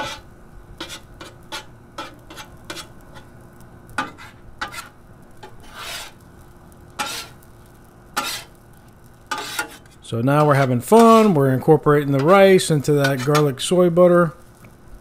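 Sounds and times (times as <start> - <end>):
metal spatulas scraping griddle: 0.0 - 3.4, 4.0 - 6.2, 7.0 - 7.5, 8.2 - 8.6, 9.3 - 13.7
rice sizzling: 0.0 - 15.0.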